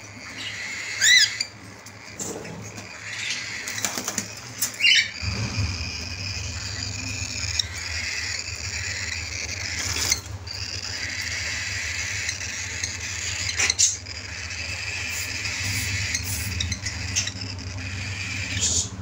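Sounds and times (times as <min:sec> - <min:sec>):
cockatiels squawking: 0:00.0 - 0:19.0
rising bird chirp: 0:00.3 - 0:19.0
wings fluttering: 0:01.7 - 0:19.0
low hum: 0:04.5 - 0:19.0.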